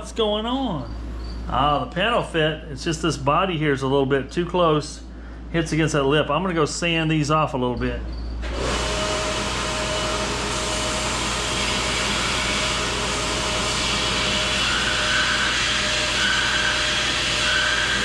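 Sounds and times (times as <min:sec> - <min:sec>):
grinder grinding metal: 0:08.4 - 0:18.0.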